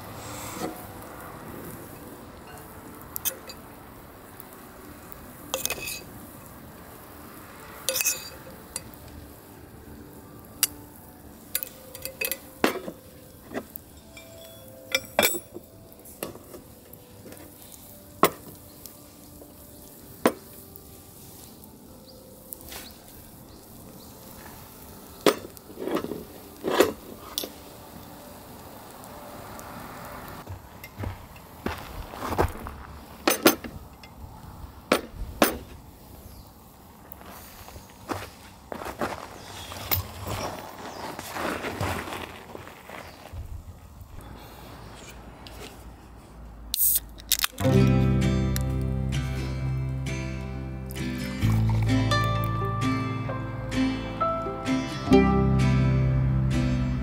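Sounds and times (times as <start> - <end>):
metal cookware clinking and scraping: 5.6 - 6.1, 7.9 - 8.9, 11.6 - 15.6.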